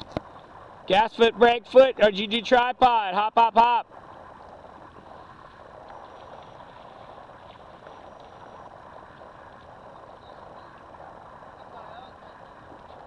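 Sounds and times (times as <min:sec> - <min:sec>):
lake water: 0:00.0 - 0:13.0
wind: 0:00.0 - 0:13.0
faint ticks: 0:04.4 - 0:11.0.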